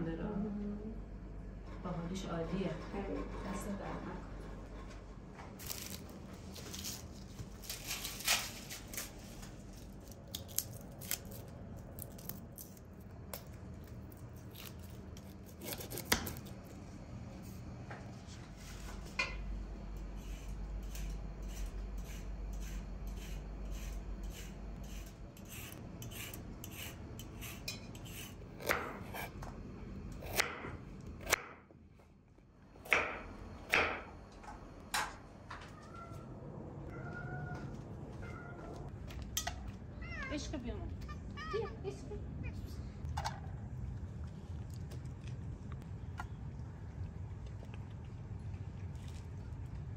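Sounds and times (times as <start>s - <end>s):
bean pods clicking and snapping: 10.0s - 15.3s.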